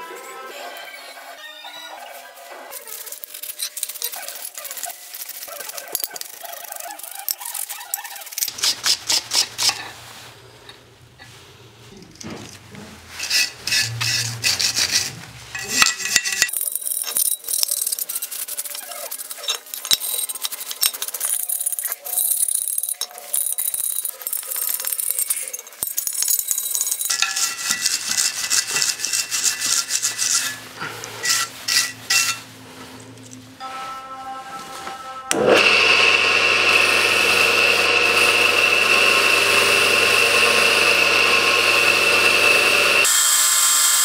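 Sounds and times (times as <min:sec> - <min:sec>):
wire brush scrubbing metal: 0:02.8 - 0:10.1, 0:13.1 - 0:32.6.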